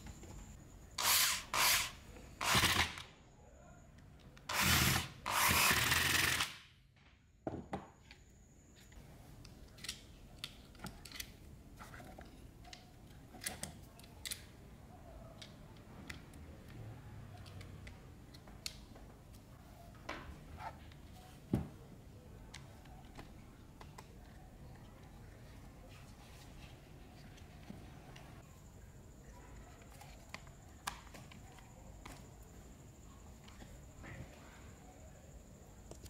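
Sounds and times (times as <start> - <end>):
electric screwdriver driving screws: 4.5 - 6.6
plastic parts clicking: 9.4 - 14.6.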